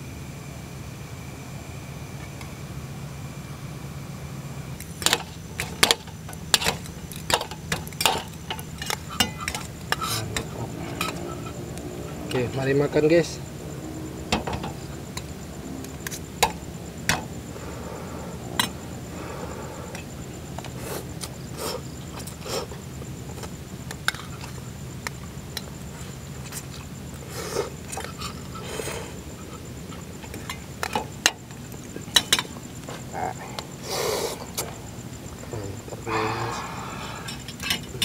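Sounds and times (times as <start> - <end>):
steady low hum: 0.0 - 38.0
utensils clinking on metal dishes: 5.0 - 11.6, 37.2 - 38.0.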